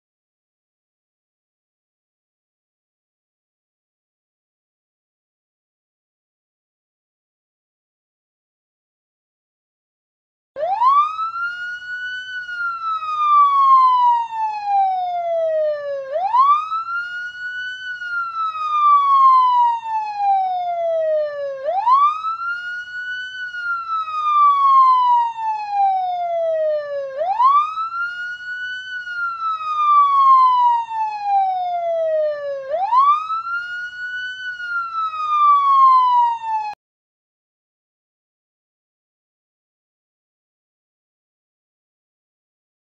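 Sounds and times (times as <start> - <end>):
police siren wail: 10.6 - 36.8.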